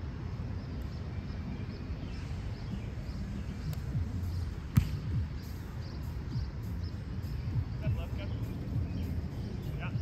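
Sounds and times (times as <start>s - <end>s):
wind rumble on microphone: 0.0s - 10.0s
hand slapping volleyball: 4.7s - 5.0s.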